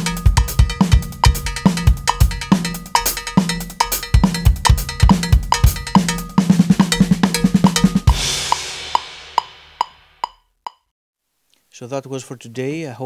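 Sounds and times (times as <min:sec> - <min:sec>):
drum kit groove: 0:00.0 - 0:10.8
metronome click: 0:09.8 - 0:10.9.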